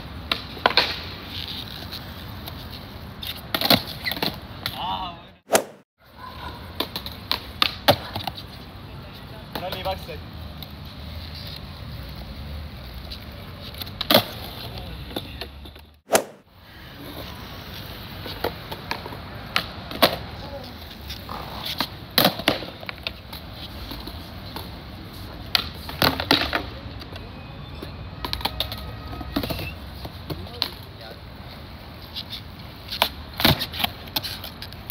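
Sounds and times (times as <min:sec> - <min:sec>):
skateboard wheels rolling on stone: 0:00.0 - 0:04.8, 0:06.7 - 0:27.2, 0:28.2 - 0:34.9
skateboard landing slaps: 0:05.5 - 0:05.8, 0:16.1 - 0:16.4, 0:22.1 - 0:23.2, 0:33.0 - 0:34.0
skateboard tail popping: 0:05.5 - 0:05.8, 0:16.1 - 0:16.4.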